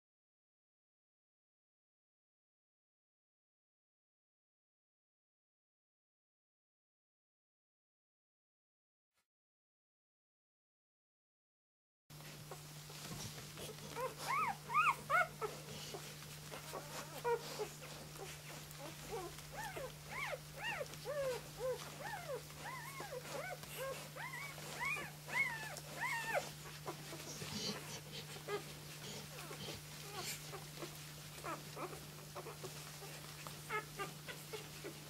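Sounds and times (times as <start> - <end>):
puppies squeaking and whimpering: 12.5 - 35.0.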